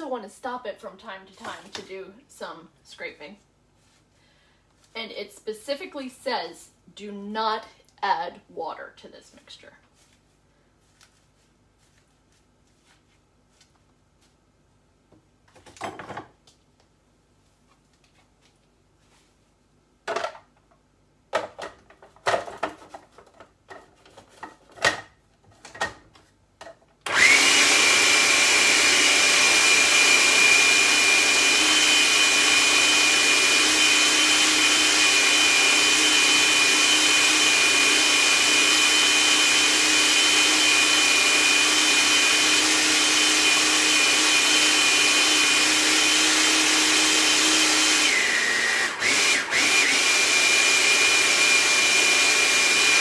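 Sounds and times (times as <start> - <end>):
food processor whining: 27.1 - 53.0.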